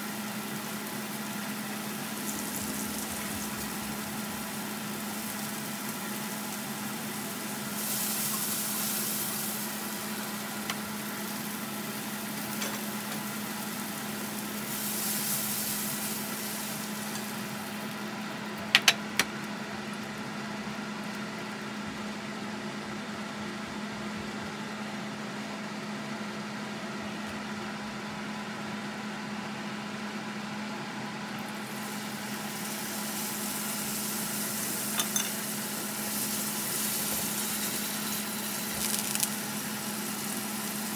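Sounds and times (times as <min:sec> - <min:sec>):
food sizzling in a frying pan: 0:00.0 - 0:20.2, 0:31.5 - 0:40.9
induction cooktop hum: 0:00.0 - 0:40.9.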